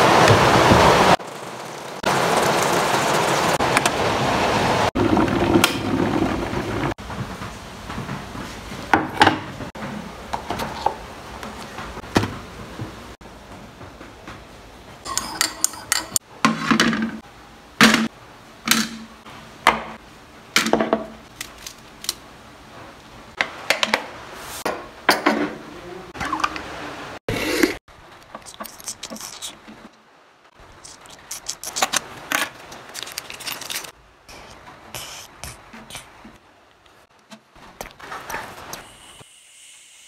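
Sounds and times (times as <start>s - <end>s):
dishes and cutlery clinking: 15.1s - 16.2s.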